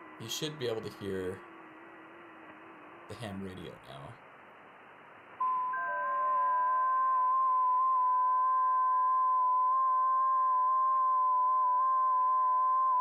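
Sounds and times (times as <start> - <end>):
faint radio band hiss: 0.0 - 6.6.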